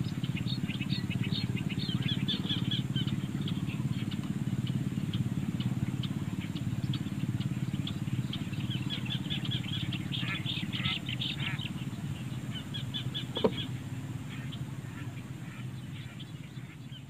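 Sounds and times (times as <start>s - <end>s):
distant motor throbbing: 0.0s - 17.0s
high bird chirps: 12.5s - 13.8s.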